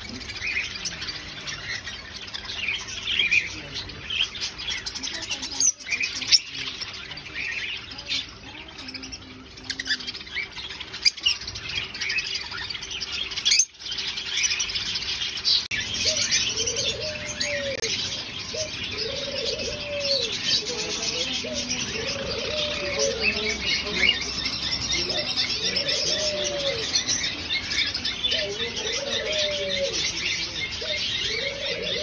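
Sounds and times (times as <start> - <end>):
cage birds chirping: 0.0 - 32.0.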